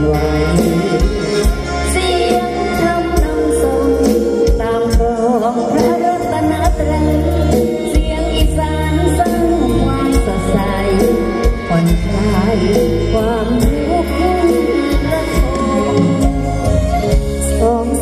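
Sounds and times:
live band music over pa: 0.0 - 18.0.

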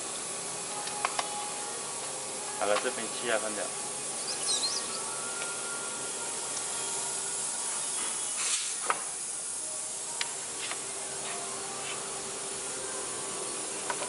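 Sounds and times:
compressed air hissing: 0.0 - 14.0.

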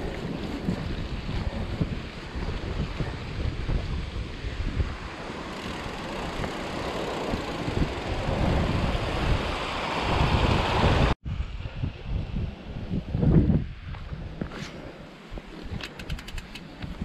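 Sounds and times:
bike rolling over rocky trail: 0.0 - 4.0
wind buffeting microphone: 0.0 - 17.0.

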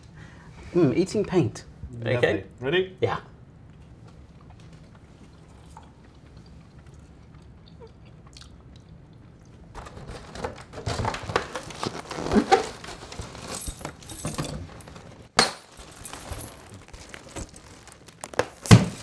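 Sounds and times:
foil balloons crinkling: 9.7 - 19.0.

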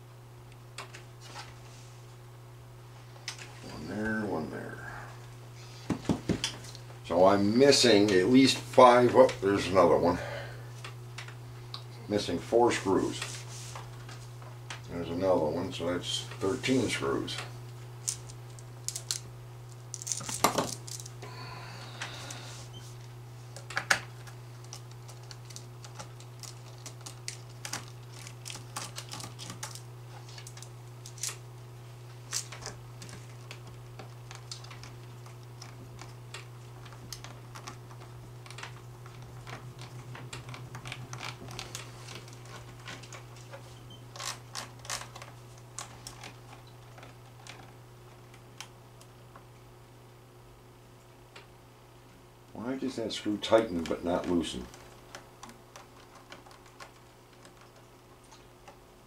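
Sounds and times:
low hum: 6.7 - 48.7.

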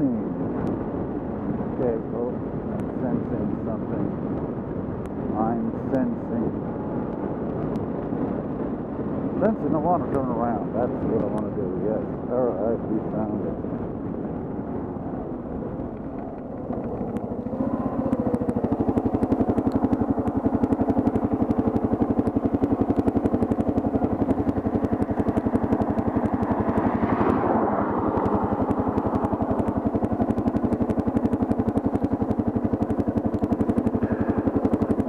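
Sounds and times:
riding noise: 9.4 - 35.0
motorcycle engine thumping: 15.6 - 35.0.

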